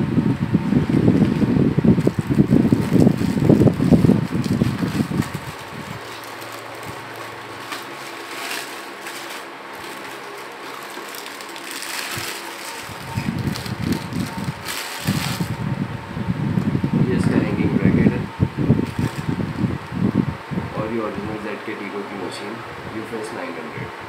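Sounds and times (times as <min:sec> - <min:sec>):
plastic bag crinkling: 0:00.9 - 0:15.6, 0:18.8 - 0:19.8.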